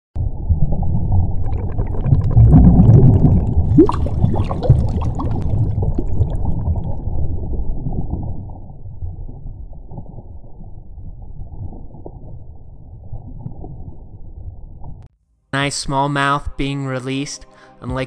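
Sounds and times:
muffled underwater bubbling: 0:00.2 - 0:12.3
low underwater rumble: 0:00.2 - 0:15.1.

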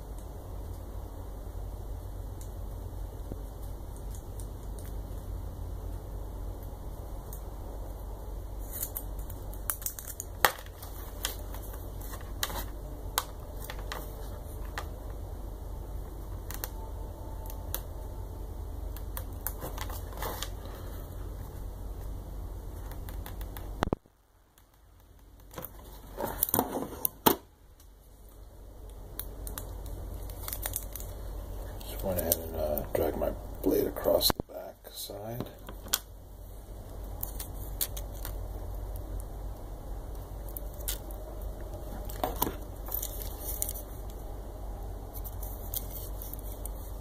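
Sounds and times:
steady low hum: 0:00.0 - 0:47.0
rustling of parts and packaging: 0:08.6 - 0:15.2, 0:19.2 - 0:22.1, 0:25.4 - 0:27.2, 0:29.5 - 0:34.3, 0:40.4 - 0:44.4, 0:45.0 - 0:47.0.

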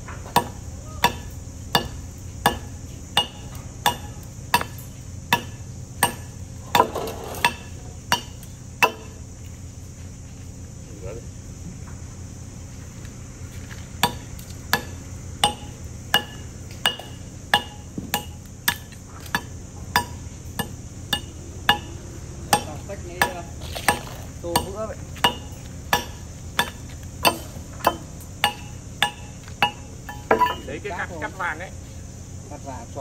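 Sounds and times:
hammer on chisel into concrete: 0:00.4 - 0:09.1, 0:19.4 - 0:30.6.

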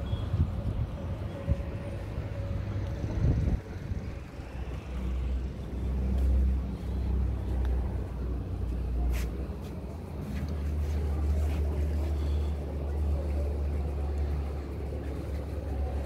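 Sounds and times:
wind buffeting microphone: 0:02.6 - 0:04.7.

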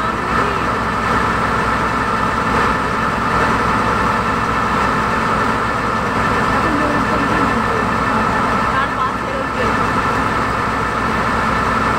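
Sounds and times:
boat engine droning: 0:00.0 - 0:11.9.

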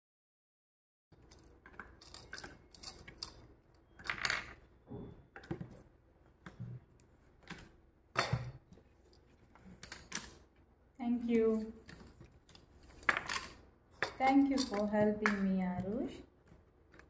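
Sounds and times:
small hard objects clicking: 0:12.5 - 0:15.5.

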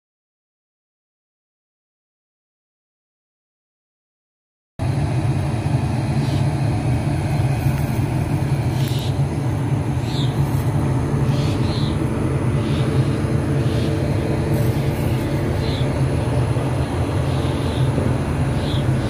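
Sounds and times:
train running rumble: 0:04.8 - 0:19.0.

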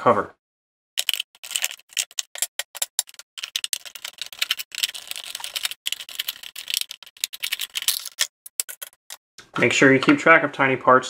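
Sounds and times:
plastic housing being handled: 0:01.0 - 0:09.2.

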